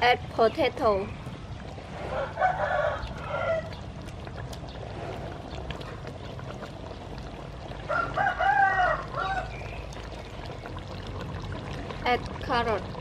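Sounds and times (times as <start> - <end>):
rooster crowing: 2.1 - 3.7, 7.9 - 9.6.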